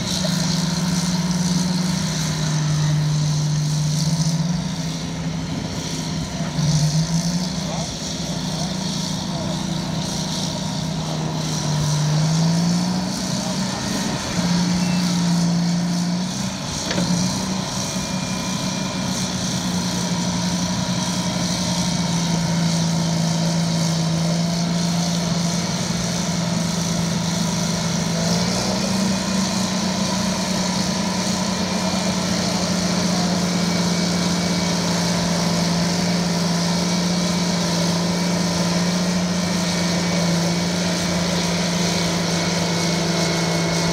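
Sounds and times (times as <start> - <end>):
diesel engines running hard: 0.0 - 43.9.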